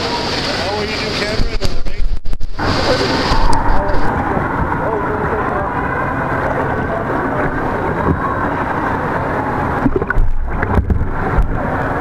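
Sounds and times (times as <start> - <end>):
muffled water sloshing and splashing: 0.0 - 12.0
low thumps: 9.8 - 11.8.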